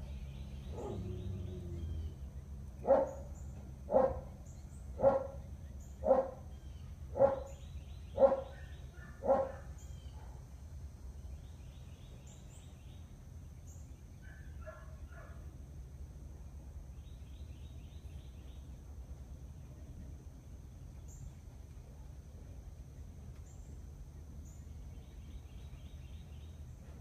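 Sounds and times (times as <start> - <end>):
dog barking: 0.7 - 1.2, 2.8 - 3.3, 3.9 - 4.3, 5.0 - 5.4, 6.0 - 6.4, 7.1 - 7.6, 8.2 - 10.4, 14.2 - 15.4.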